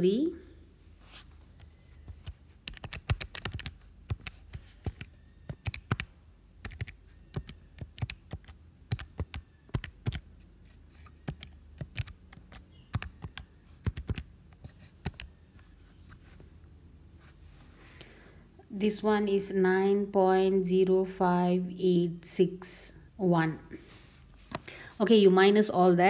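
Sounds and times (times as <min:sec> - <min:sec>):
calculator keys tapping: 0:01.6 - 0:10.3, 0:11.0 - 0:15.4.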